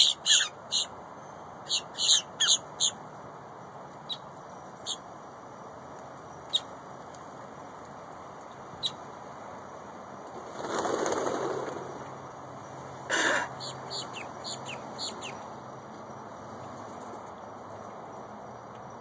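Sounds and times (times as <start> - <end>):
grackles calling: 0.0 - 0.9, 1.6 - 3.0, 4.1 - 5.0, 13.1 - 15.4.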